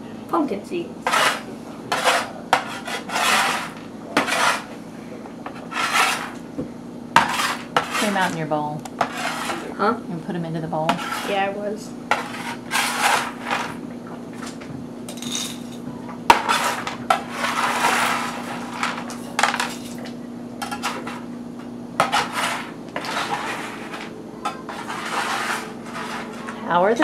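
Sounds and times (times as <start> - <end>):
steady low hum: 0.0 - 27.0
seeds scraping on metal sheet: 5.7 - 6.3, 12.1 - 13.7, 16.4 - 19.0, 22.0 - 24.1, 24.7 - 26.5.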